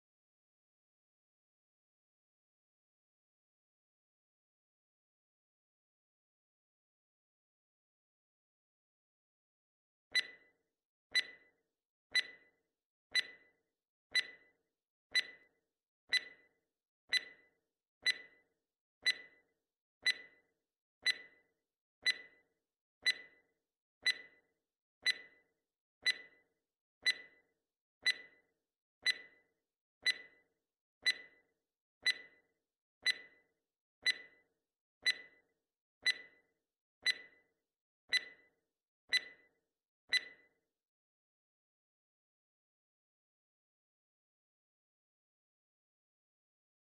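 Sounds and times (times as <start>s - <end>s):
countdown timer ticking: 18.0s - 18.3s, 19.0s - 19.3s, 20.0s - 20.3s, 21.0s - 21.3s, 22.0s - 22.3s, 23.0s - 23.3s, 24.0s - 24.3s, 25.0s - 25.3s, 26.0s - 26.3s, 27.0s - 27.3s, 28.0s - 28.3s, 29.0s - 29.3s, 30.0s - 30.3s, 31.0s - 31.4s, 32.0s - 32.4s, 33.0s - 33.3s, 34.0s - 34.3s, 35.0s - 35.3s, 36.0s - 36.3s, 37.0s - 37.3s, 38.1s - 38.4s.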